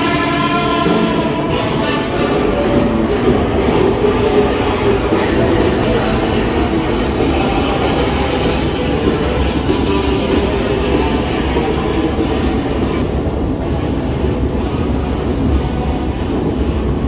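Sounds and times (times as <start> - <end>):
busker's guitar music: 0.0 - 13.1
escalator machinery rumble: 0.0 - 17.0
trains rumbling: 0.0 - 17.0.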